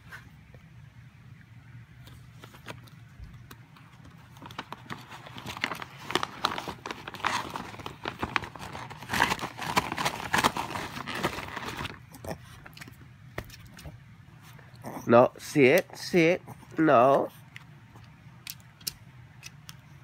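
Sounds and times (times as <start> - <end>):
plastic bag crinkling: 3.9 - 13.9.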